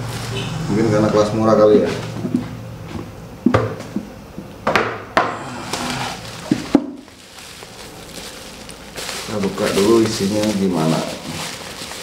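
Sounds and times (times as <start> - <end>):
foam sheet rustling: 0.0 - 0.6, 5.4 - 12.0.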